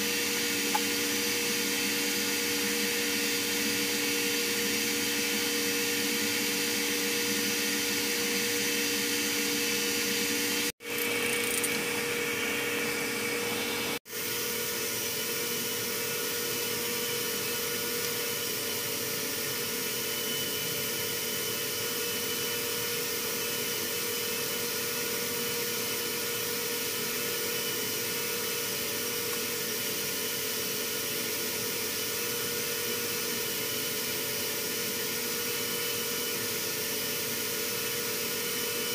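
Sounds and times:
arc welding: 10.8 - 12.1.

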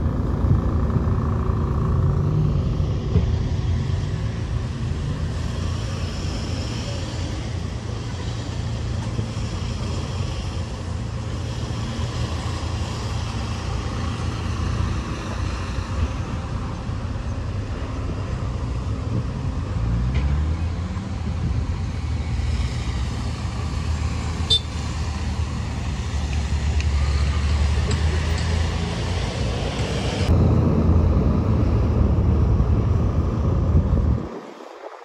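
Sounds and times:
bus engine running: 0.0 - 34.6
road traffic: 0.0 - 35.0.

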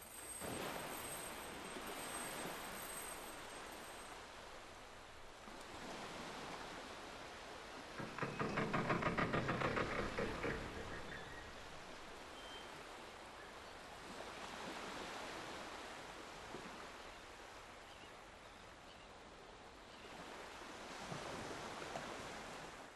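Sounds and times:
waves washing: 0.0 - 17.7.

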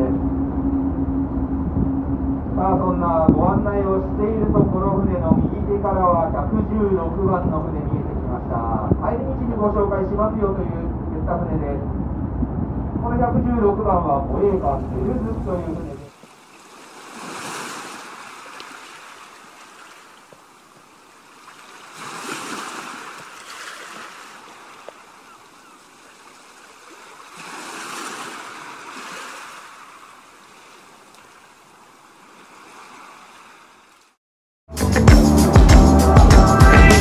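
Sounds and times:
harbour water washing: 14.2 - 34.2.

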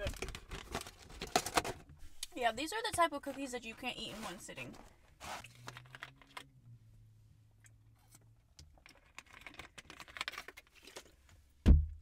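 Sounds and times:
plastic bottle crinkling: 8.8 - 11.3.

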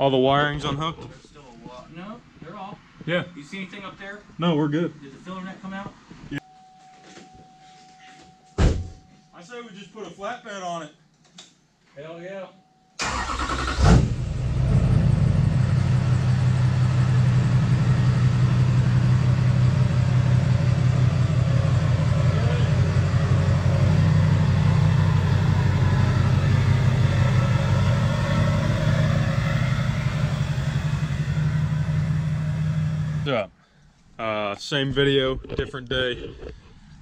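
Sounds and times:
diesel engine idling: 13.0 - 33.3.

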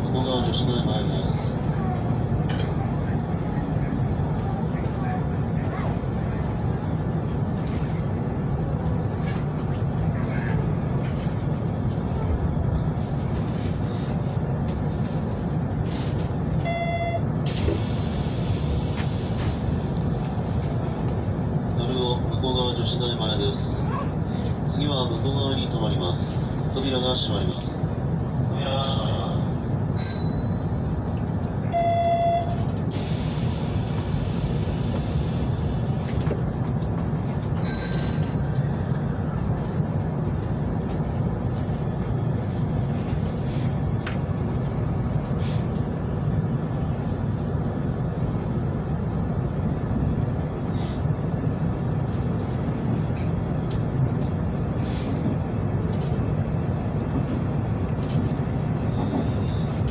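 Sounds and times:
electric train rumbling: 0.0 - 59.9
brief high tone: 16.7 - 17.2, 31.7 - 32.6.

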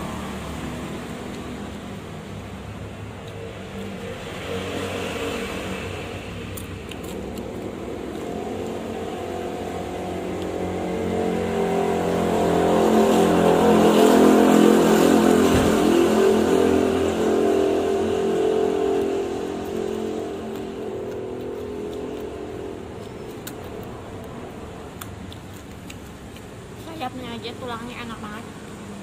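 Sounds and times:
vehicle engine running: 5.7 - 26.0.

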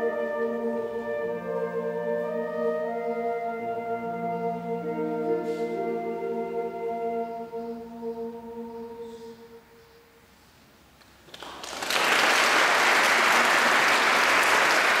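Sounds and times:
choir holding a chord: 0.0 - 10.0
audience applause: 11.3 - 15.0.

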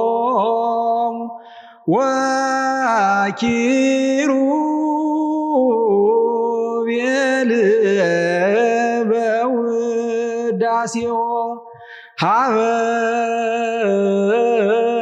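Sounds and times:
man chanting: 0.0 - 15.0
breath: 1.4 - 1.9, 11.7 - 12.2.

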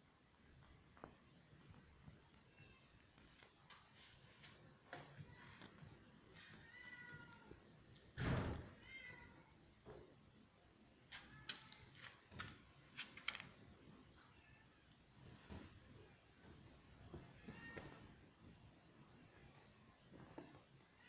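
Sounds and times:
cat meowing: 6.4 - 7.6, 8.8 - 9.4, 17.4 - 18.0
sharp clicks and scuffs: 11.0 - 13.6.

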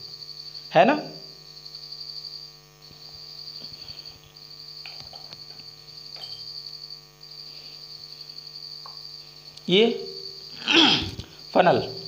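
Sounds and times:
background hum: 0.0 - 12.0
objects set down on table: 4.9 - 6.5.

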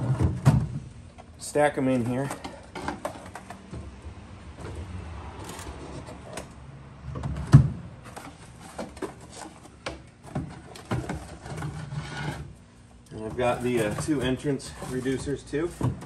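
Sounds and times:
wooden boards knocking and scraping: 0.0 - 1.2, 7.1 - 12.6, 13.2 - 16.0.

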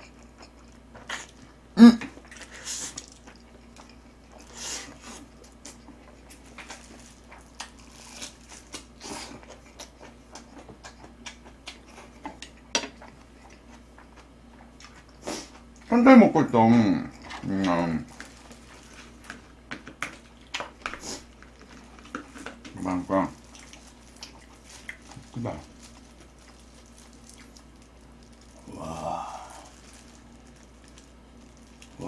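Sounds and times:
person chewing noodles: 0.0 - 15.9, 17.1 - 32.0
person grunting: 1.8 - 2.1, 28.6 - 29.7.

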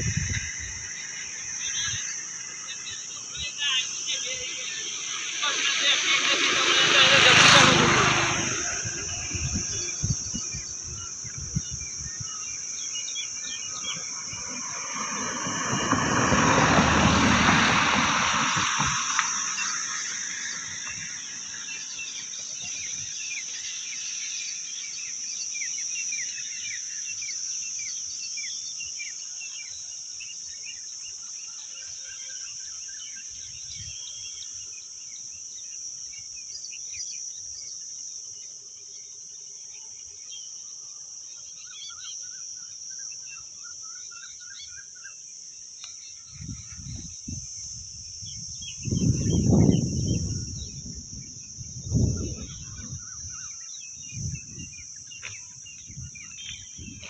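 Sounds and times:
wind buffeting microphone: 0.0 - 2.3, 7.1 - 12.5, 13.8 - 19.6, 46.3 - 57.0
high-pitched insect chorus: 0.0 - 57.0.

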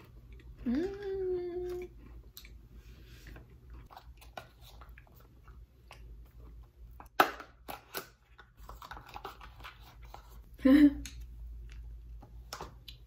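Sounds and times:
person chewing: 0.0 - 7.0
person humming: 0.6 - 1.9.

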